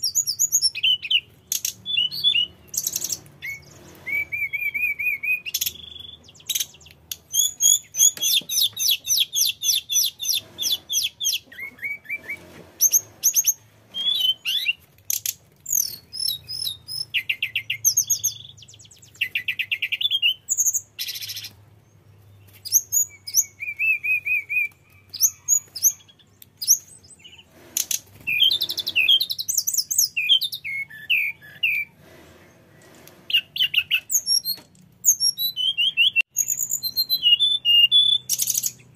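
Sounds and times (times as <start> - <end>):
bird singing: 0.0 - 38.9.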